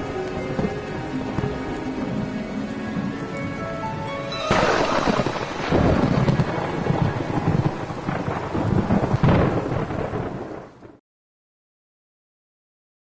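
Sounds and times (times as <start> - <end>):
rain falling: 0.0 - 11.0
rolling thunder: 0.0 - 11.0
thunder crack: 4.3 - 11.0.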